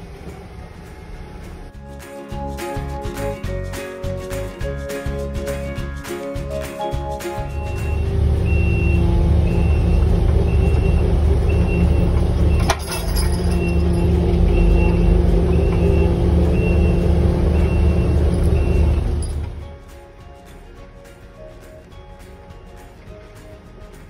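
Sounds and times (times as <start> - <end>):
truck engine running: 0.0 - 1.8, 6.4 - 24.0
backup alarm beeping: 7.4 - 12.7, 13.5 - 19.2.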